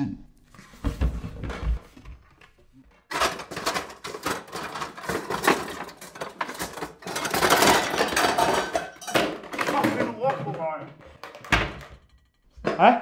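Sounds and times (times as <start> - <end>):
pots and pans clattering: 2.9 - 13.0.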